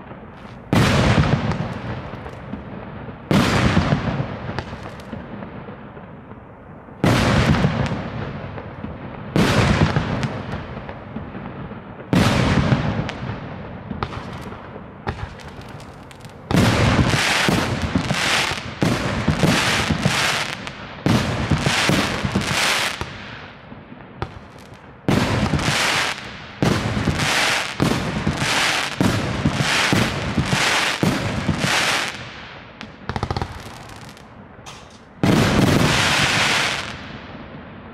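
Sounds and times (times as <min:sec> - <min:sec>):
fireworks banging: 0:00.0 - 0:06.4, 0:12.0 - 0:23.2, 0:24.2 - 0:37.2.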